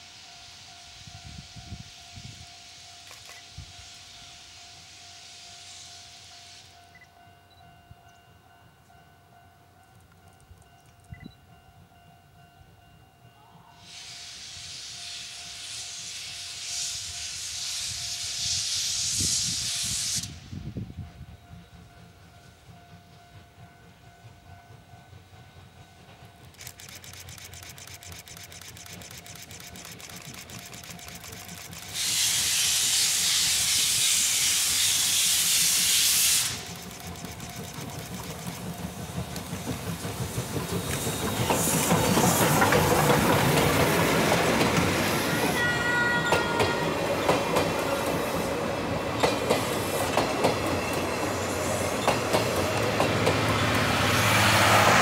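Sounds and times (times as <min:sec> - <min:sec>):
loud steam hiss: 0:00.0 - 0:06.8, 0:13.8 - 0:20.8, 0:28.7 - 0:55.0
steam locomotive exhaust beats: 0:00.0 - 0:55.0
train wheels clickety-clack on rails: 0:06.4 - 0:12.1, 0:14.9 - 0:55.0.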